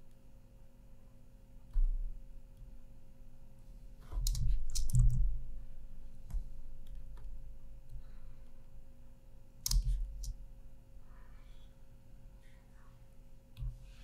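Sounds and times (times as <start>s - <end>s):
computer mouse clicks: 4.1s - 5.2s, 9.6s - 10.4s.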